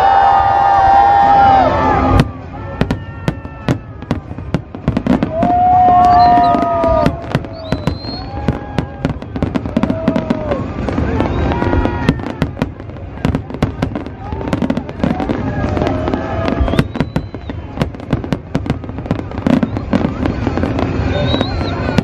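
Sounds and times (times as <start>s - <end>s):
fireworks bangs and crackles: 0.1s - 22.0s.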